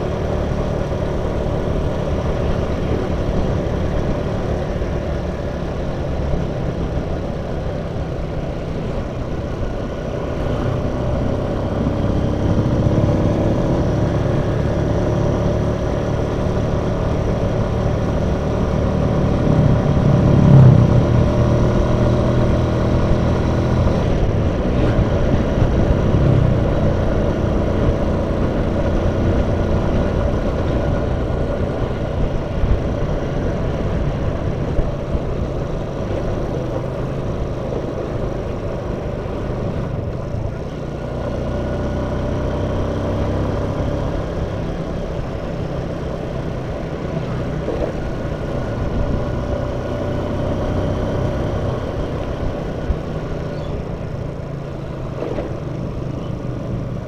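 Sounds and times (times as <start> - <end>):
motorcycle engine running: 0.0 - 57.0
road and wind noise: 0.0 - 57.0.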